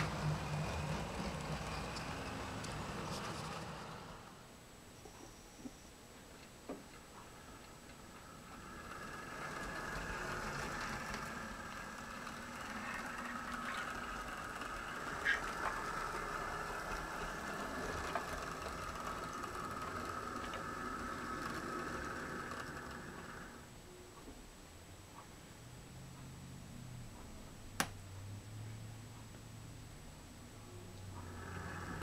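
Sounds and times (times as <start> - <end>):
wheels clicking over track joints: 0.0 - 4.2, 8.2 - 23.6
model train motor whine: 0.0 - 4.5, 8.2 - 23.7, 31.1 - 32.0.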